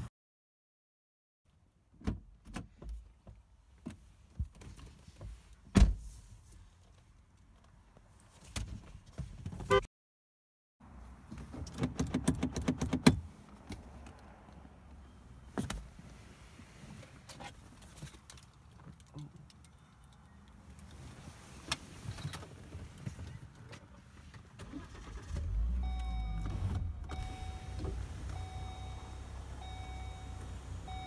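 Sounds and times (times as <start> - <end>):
people moving in car cabin: 11.0 - 31.0.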